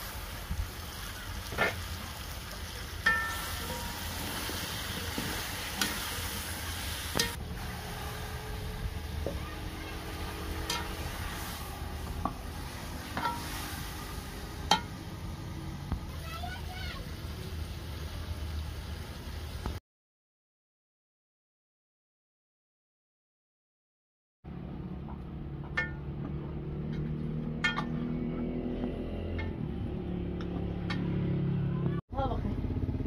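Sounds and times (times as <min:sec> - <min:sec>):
vegetables sizzling in a pot: 0:00.0 - 0:19.8.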